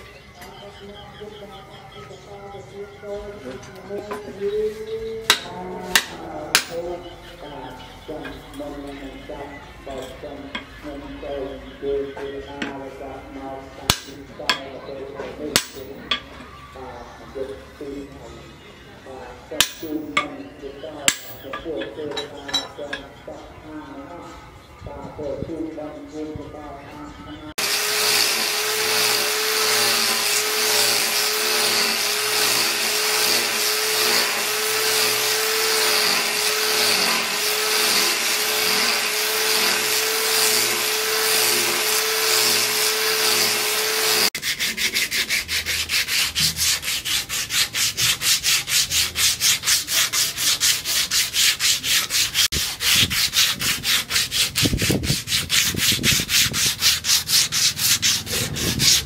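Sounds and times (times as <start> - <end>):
angle grinder sanding wood: 27.6 - 59.0.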